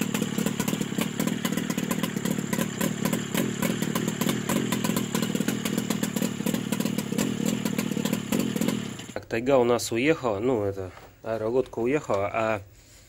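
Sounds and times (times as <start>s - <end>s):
engine running steadily: 0.0s - 9.2s.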